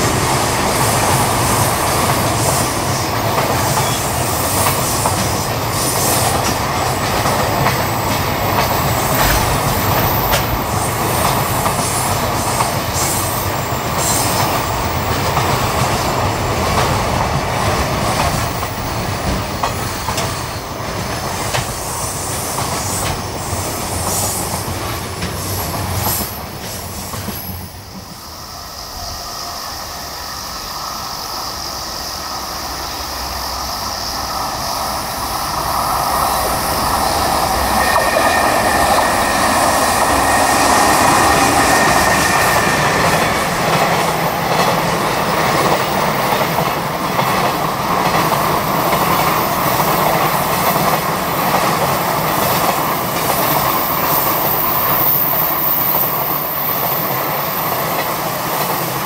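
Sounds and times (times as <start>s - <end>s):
train wheels clattering over rail joints: 0.0s - 27.7s
high wheel squeal: 36.2s - 44.0s.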